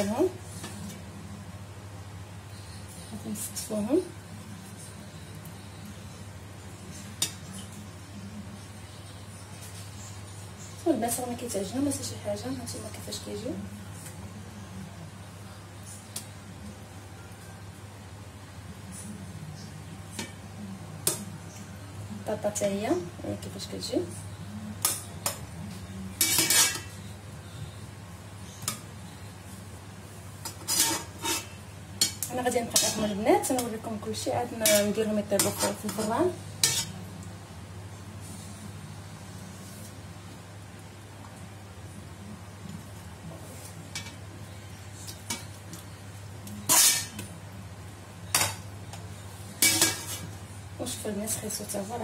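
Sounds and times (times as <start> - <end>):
utensils scraping a steel pot: 26.2 - 27.0, 30.4 - 33.2, 34.6 - 37.0, 46.6 - 47.2
utensils knocking against metal pot: 49.6 - 50.2.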